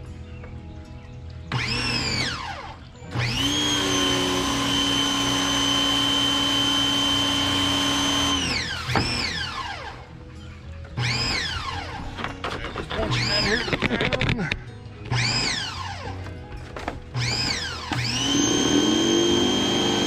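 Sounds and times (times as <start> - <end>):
pressure washer motor whine: 1.5 - 10.1, 11.0 - 12.0, 17.2 - 20.0.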